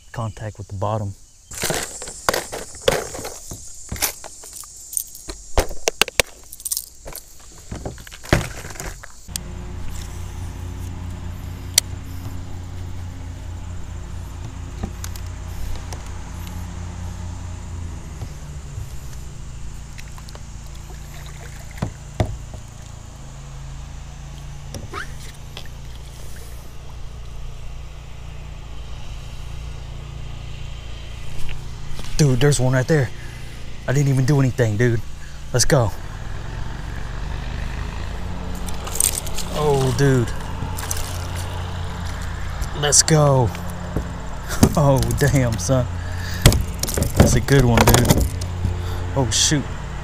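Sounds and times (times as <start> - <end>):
fishing lures clattering in plastic box: 1.5 - 4.7, 46.4 - 48.4
steady low rumble: 9.2 - 37.2.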